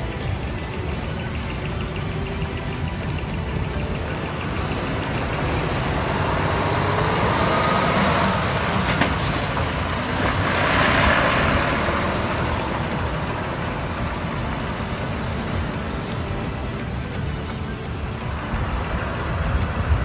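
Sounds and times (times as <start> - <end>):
truck diesel engine passing: 0.0 - 20.0.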